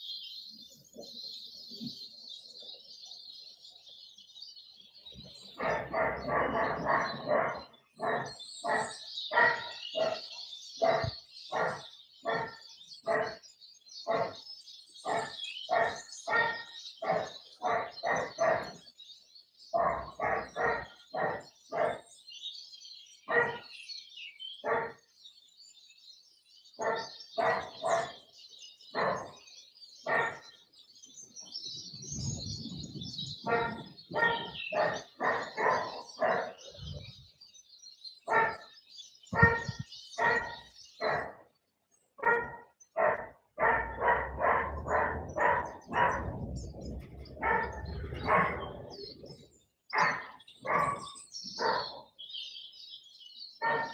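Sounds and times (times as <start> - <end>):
small birds twittering: 0.0 - 53.9
dog barking: 5.6 - 13.4, 14.1 - 14.4, 15.1 - 18.8, 19.8 - 22.0, 23.3 - 23.7, 24.6 - 25.0, 26.8 - 28.2, 29.0 - 29.4, 30.1 - 30.5, 33.4 - 36.8, 38.3 - 38.7, 39.3 - 41.4, 42.2 - 46.5, 47.3 - 49.0, 49.9 - 52.2, 53.6 - 53.9.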